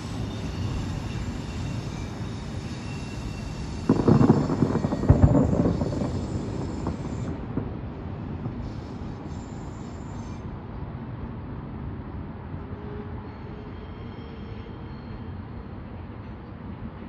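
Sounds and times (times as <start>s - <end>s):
fireworks crackling: 2.4s - 10.1s
fireworks booming: 3.5s - 9.6s.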